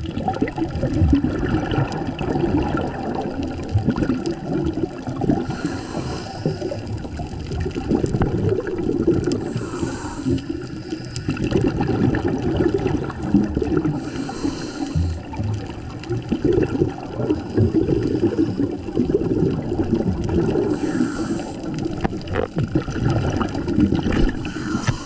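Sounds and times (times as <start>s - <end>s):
bubbles gurgling: 0.0s - 25.0s
regulator breathing underwater: 5.2s - 7.2s, 9.2s - 11.8s, 13.8s - 15.4s, 17.2s - 19.3s, 20.3s - 22.4s, 23.4s - 25.0s.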